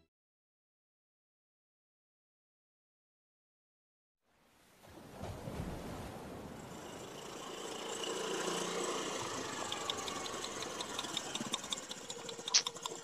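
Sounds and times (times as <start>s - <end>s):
engine running: 6.3s - 13.0s
faint regular ticking: 6.7s - 13.0s.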